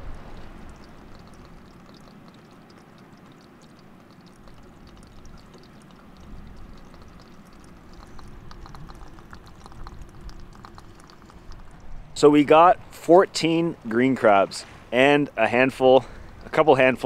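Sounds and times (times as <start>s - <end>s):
low steady wash: 0.0s - 17.0s
crabs and shells clicking: 0.7s - 12.0s.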